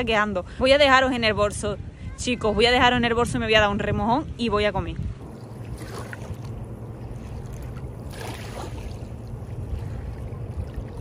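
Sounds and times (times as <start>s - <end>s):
steady low rumble: 0.0s - 11.0s
ripples lapping on sand: 4.4s - 11.0s.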